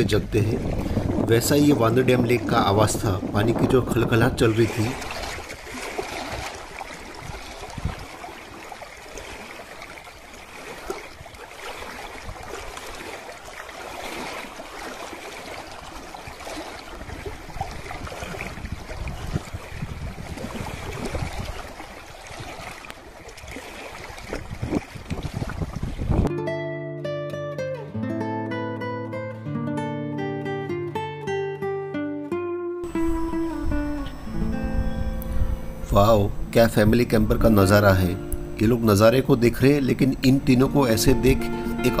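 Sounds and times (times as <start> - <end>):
water lapping against rocky shore: 0.0 - 26.3.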